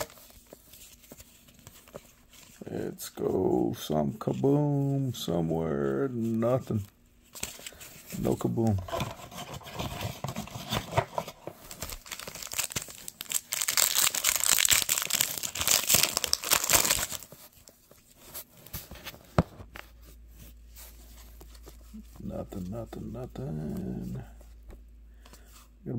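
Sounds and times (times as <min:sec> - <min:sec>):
cards rustling: 0:00.0 - 0:03.5, 0:06.1 - 0:19.4
foil wrapper tearing and crinkling: 0:09.8 - 0:17.4.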